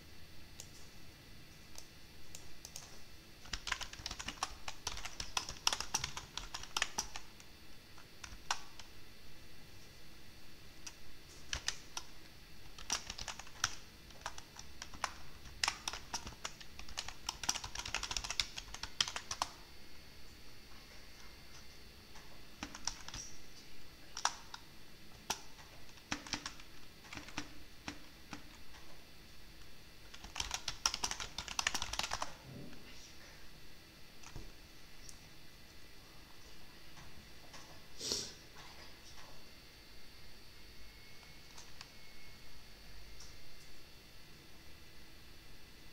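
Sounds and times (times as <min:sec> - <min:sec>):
typing on computer keyboard: 0:02.3 - 0:07.3, 0:08.0 - 0:08.9, 0:10.8 - 0:19.6, 0:22.6 - 0:23.4, 0:24.1 - 0:24.6, 0:25.2 - 0:28.6, 0:30.1 - 0:32.4.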